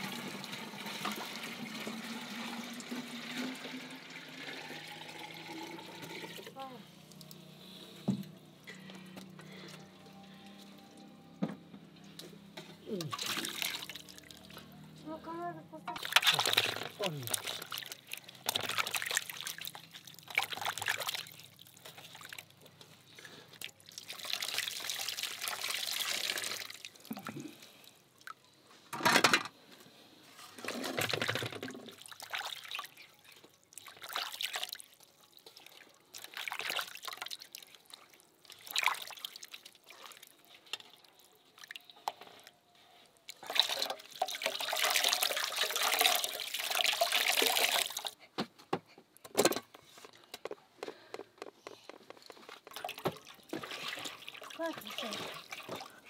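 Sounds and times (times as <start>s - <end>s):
water trickling and splashing: 0.0s - 7.6s, 12.6s - 14.9s, 15.9s - 28.4s, 30.6s - 48.2s, 52.2s - 56.0s.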